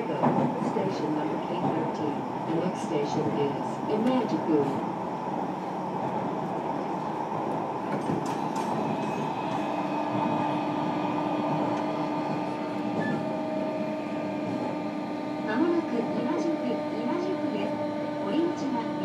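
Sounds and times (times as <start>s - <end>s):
train wheels rumbling on rail: 0.0s - 19.0s
steady hum: 8.7s - 19.0s.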